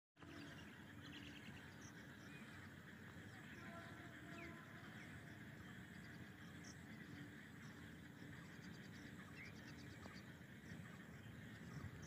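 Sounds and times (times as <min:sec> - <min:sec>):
faint bird calls: 0:00.2 - 0:12.0.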